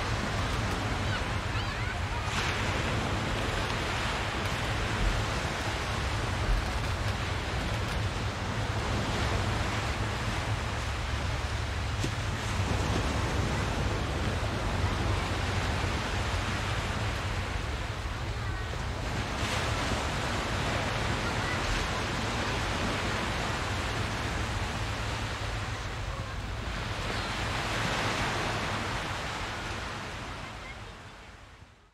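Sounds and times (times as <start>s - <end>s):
surf washing ashore: 0.0s - 31.9s
children's voices: 0.7s - 2.8s, 18.1s - 19.0s, 20.9s - 23.3s, 25.5s - 28.2s.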